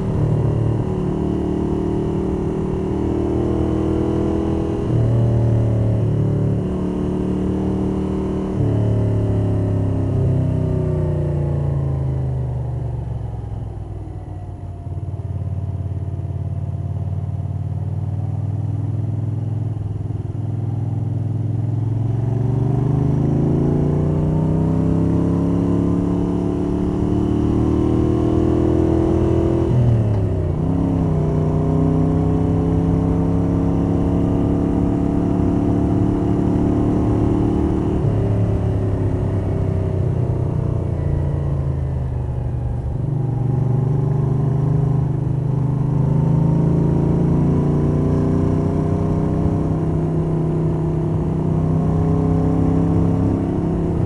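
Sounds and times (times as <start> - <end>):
motorcycle engine revving: 0.0 - 12.4, 20.8 - 54.0.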